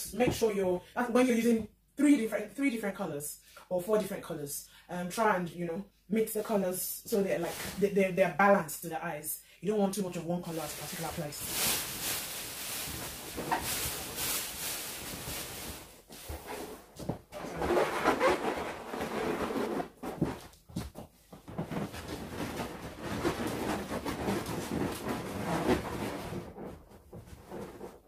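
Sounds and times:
balloons rubbing and bumping: 10.5s - 28.0s.

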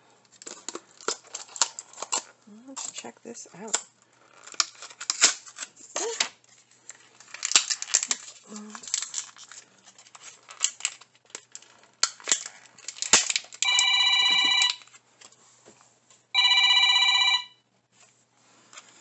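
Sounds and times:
plastic capsule clicks and rustles: 0.3s - 13.9s
electronic ringing tone: 13.6s - 14.8s, 16.4s - 17.6s.

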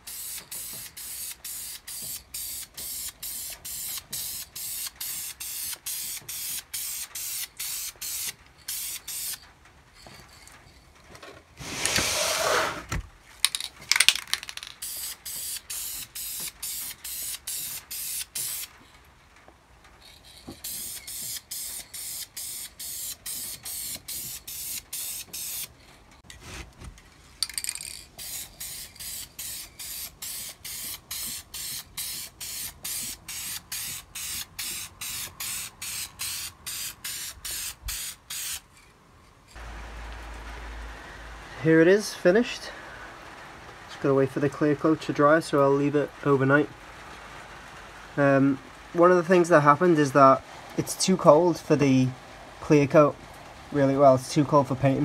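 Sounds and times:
spray paint can hissing: 0.0s - 9.4s, 13.5s - 18.7s, 20.3s - 25.7s, 27.5s - 38.6s.

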